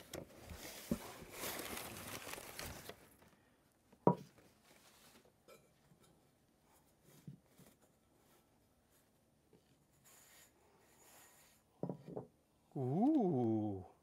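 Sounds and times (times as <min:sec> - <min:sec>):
paper packing rustling: 0:00.0 - 0:03.4.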